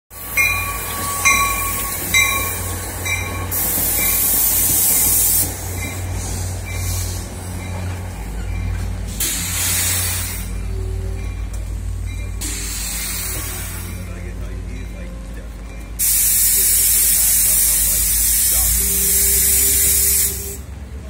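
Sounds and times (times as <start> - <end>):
train rumbling past: 0.1 - 21.0
bell striking: 0.4 - 3.5
loud hiss: 9.1 - 10.6, 12.4 - 14.0, 16.0 - 20.6.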